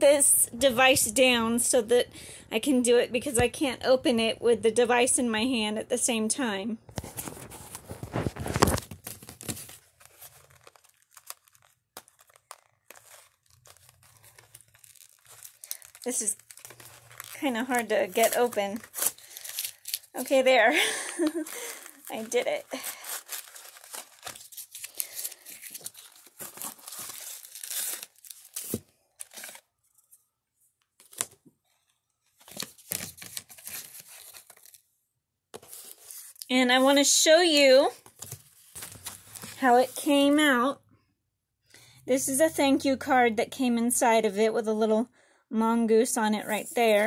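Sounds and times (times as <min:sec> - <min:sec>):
handling sounds: 0:06.9 - 0:30.1
paper package rustling and crinkling: 0:06.9 - 0:30.2, 0:30.8 - 0:34.9, 0:35.6 - 0:40.3.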